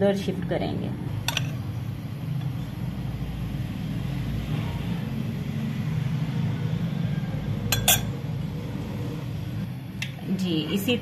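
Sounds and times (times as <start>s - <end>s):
metal spoon clinking glass bowl: 7.7s - 8.2s.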